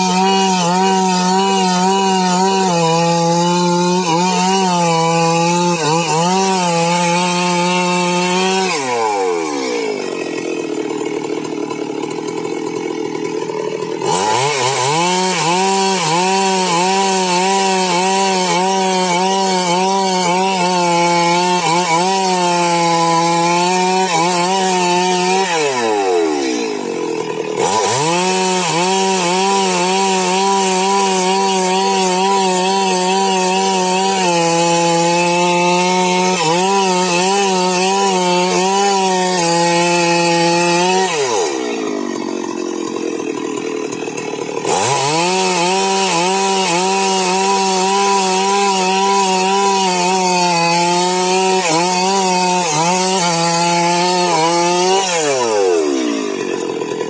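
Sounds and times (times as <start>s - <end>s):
chainsaw cutting a log: 0.0s - 57.0s
chainsaw idling: 0.0s - 57.0s.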